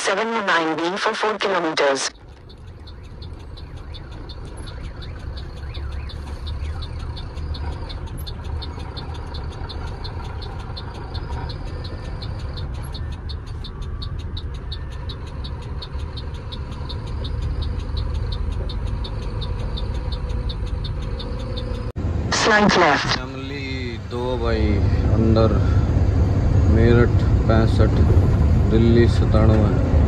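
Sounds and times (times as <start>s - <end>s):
diesel engine rumbling: 0.0s - 30.0s
high ticking: 2.1s - 22.6s.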